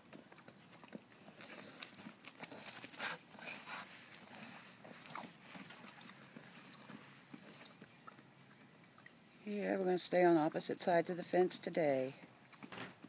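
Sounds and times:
pigs smacking lips: 0.0 - 9.2, 12.2 - 13.0.

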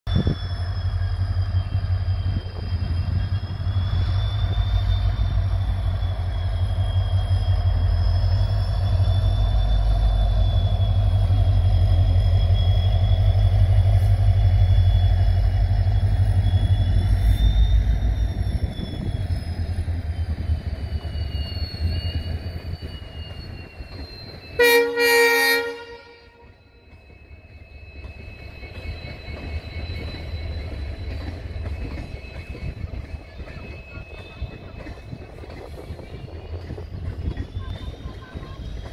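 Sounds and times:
high wheel squeal: 0.1 - 38.9
train rumbling past: 0.1 - 38.9
train horn: 24.6 - 26.6.

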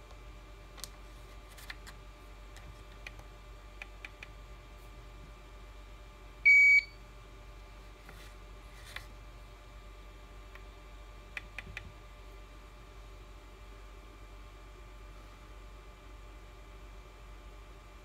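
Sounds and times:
soldering station beep: 6.4 - 7.0.

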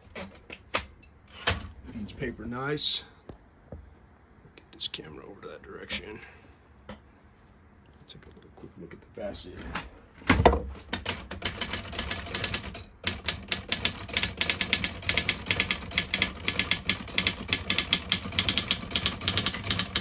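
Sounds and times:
manual typewriter typing fast: 10.9 - 20.0.

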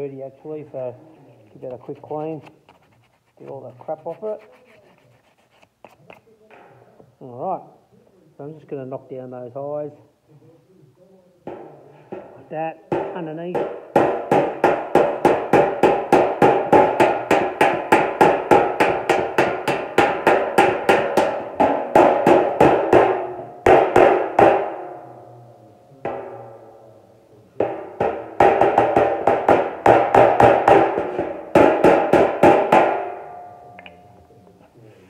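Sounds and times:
hammer tapping steel panel: 11.5 - 24.9, 27.6 - 34.0.

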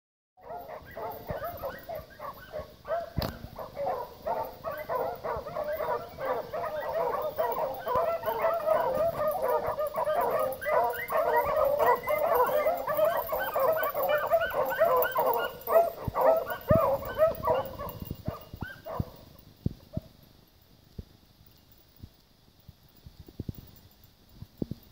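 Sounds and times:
pack of hounds baying: 0.4 - 19.3.

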